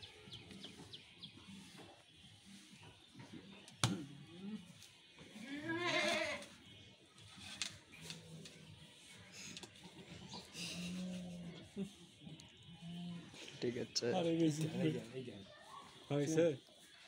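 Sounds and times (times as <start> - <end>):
goat bleating: 5.4 - 6.5.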